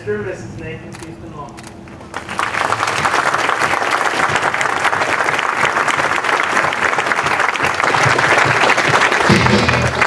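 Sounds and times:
crowd applauding: 2.0 - 10.0.

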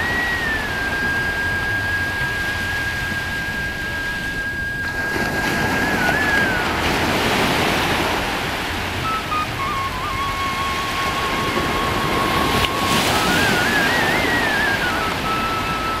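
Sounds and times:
surf breaking on beach: 0.0 - 16.0.

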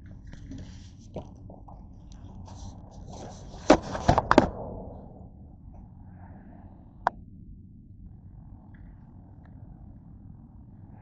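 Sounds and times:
camera handling thunks and rubbing: 2.5 - 4.5.

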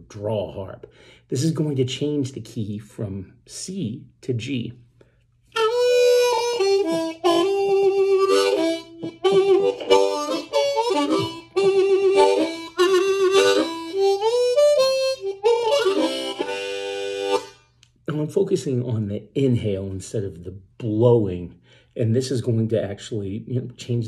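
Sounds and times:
blues harmonica playing: 5.5 - 17.8.

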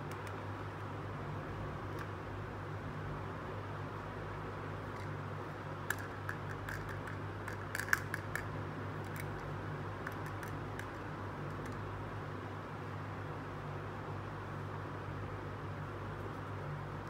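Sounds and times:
steady low hum: 0.0 - 17.0
plastic toy pieces clicking: 5.9 - 9.4.

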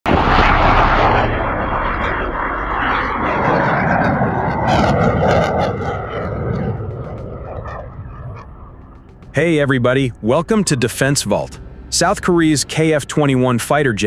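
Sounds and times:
jet engine crackle: 0.1 - 9.3
jet engine roar overhead: 0.1 - 14.0.

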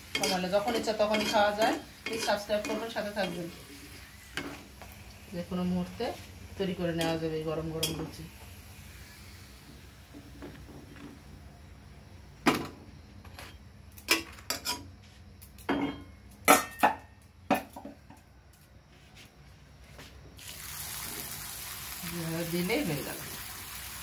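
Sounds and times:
bread frying in hot oil: 0.0 - 11.0, 20.4 - 24.0
steel kitchenware clinking: 0.1 - 3.5.

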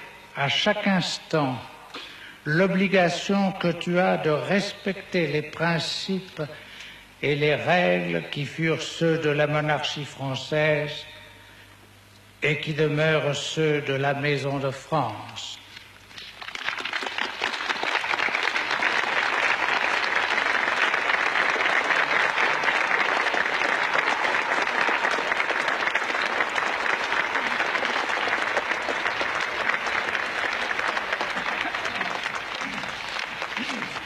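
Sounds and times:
audience applauding: 16.2 - 34.0.

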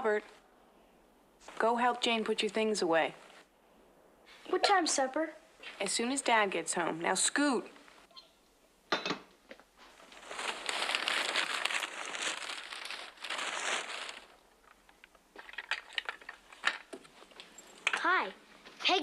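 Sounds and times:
paper rustling and crinkling: 9.8 - 16.9.

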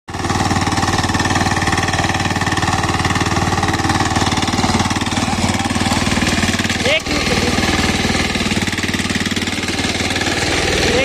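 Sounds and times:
diesel engine knocking under load: 0.1 - 11.0
rotary tines tilling dry soil: 0.1 - 11.0.

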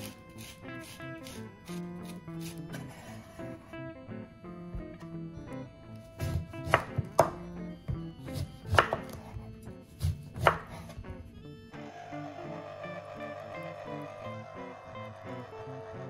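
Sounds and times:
knife cutting oranges: 0.0 - 3.5, 6.0 - 11.0.

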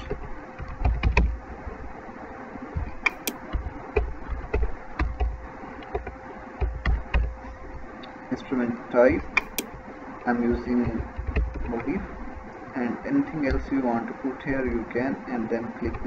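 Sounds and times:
faint steady hum: 0.0 - 16.0
keyboard keys clicking: 2.8 - 7.3, 9.4 - 9.8
dull low thumps: 2.8 - 7.8.

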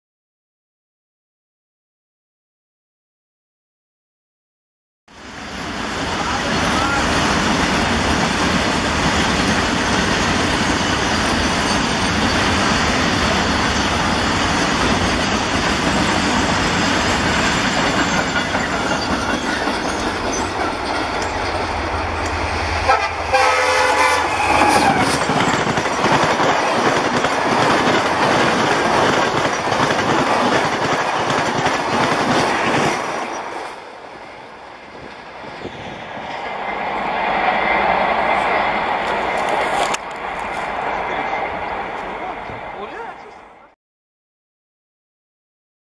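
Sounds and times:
train rushing past on rails: 5.1 - 43.8
train horn blasts: 22.8 - 25.2.

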